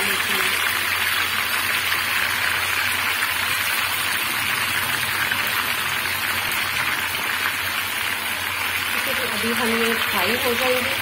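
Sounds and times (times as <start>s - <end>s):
hot oil sizzling: 0.0s - 11.0s.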